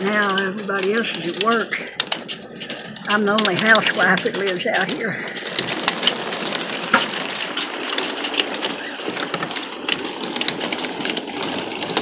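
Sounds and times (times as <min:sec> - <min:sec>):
hailstones ticking: 0:00.0 - 0:12.0
rain hissing on a roof: 0:00.0 - 0:12.0.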